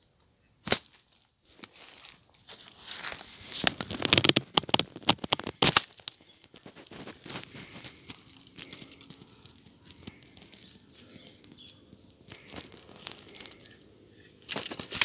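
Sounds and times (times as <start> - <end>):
leaves and twigs rustling and crackling: 0.0 - 15.0.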